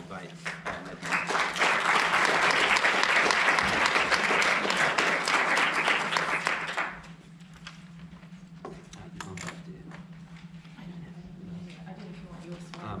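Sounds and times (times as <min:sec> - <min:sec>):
audience applauding: 0:00.4 - 0:07.1.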